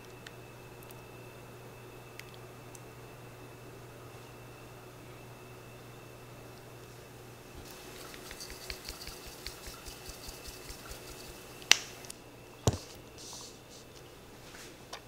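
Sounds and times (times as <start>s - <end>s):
pepper mill grinding: 7.6s - 11.7s
object knocked on hard counter: 12.7s - 12.9s.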